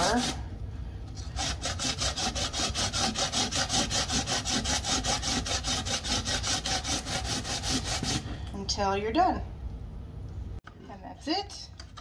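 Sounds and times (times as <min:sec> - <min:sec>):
cucumber rasping on grater: 0:00.0 - 0:00.4, 0:01.2 - 0:08.2.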